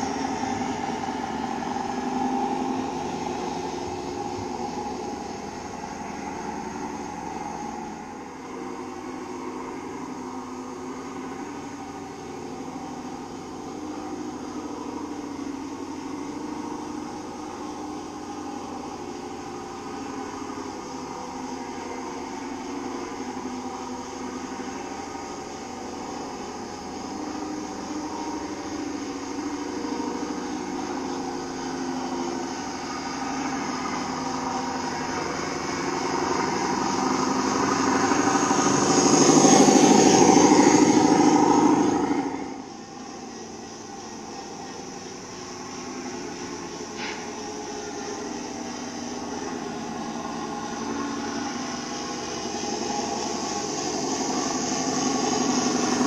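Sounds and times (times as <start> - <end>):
model truck engine sound: 0.0 - 56.0.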